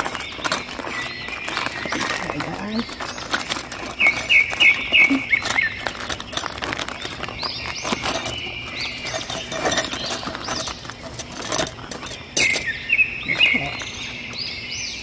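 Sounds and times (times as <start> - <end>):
bird chirping: 0.0 - 15.0
rustling pouch of tent stakes: 0.0 - 15.0.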